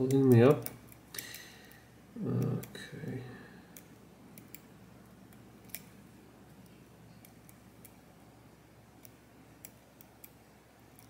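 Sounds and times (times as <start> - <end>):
low steady hum: 0.0 - 11.0
lock pick metallic ticks: 5.3 - 5.9.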